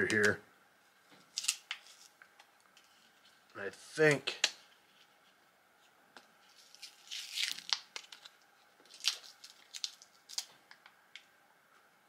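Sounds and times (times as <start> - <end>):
tape crinkling and rustling: 1.1 - 3.6, 6.2 - 11.3.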